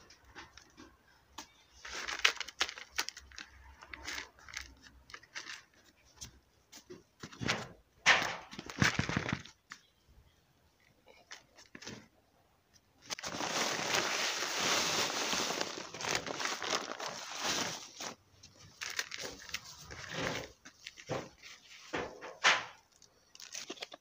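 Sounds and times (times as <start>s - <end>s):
potting mix pouring into bucket: 13.2s - 17.8s.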